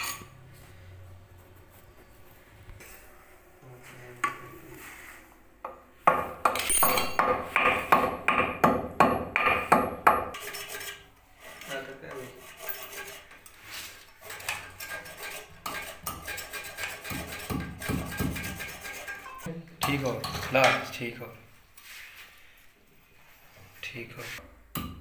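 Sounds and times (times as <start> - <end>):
tools striking ceramic toilet bowl: 5.7 - 10.6, 14.3 - 20.9, 24.7 - 25.0.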